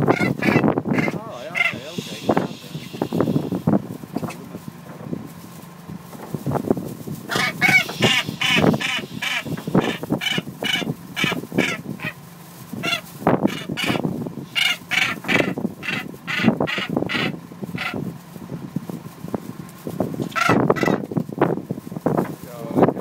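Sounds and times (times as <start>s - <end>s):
seabird rough grating calls: 0.0s - 4.5s, 7.2s - 18.0s, 20.3s - 21.1s.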